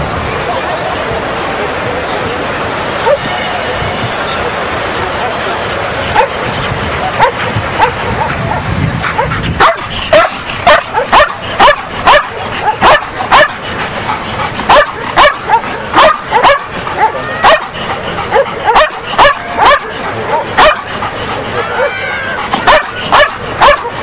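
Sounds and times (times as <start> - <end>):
dog barking: 7.0 - 13.6, 14.7 - 20.9, 21.6 - 24.0.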